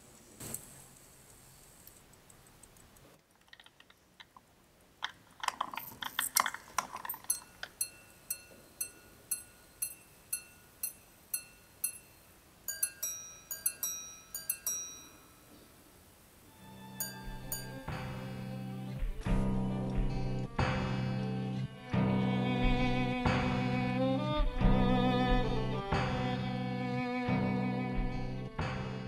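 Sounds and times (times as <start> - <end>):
watch gongs chiming: 7.3 - 15.5, 17.0 - 18.9.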